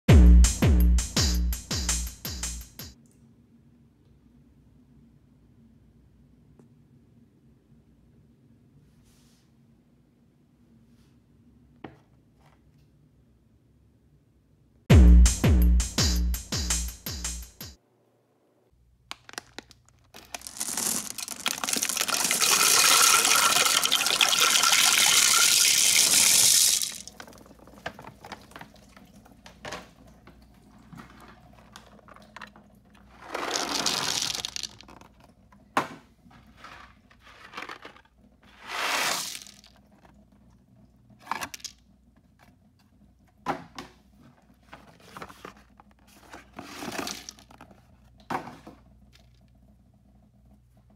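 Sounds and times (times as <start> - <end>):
candies rattling in toilet bowl: 19.1 - 30.0, 30.6 - 35.7, 36.4 - 40.5, 44.9 - 47.9.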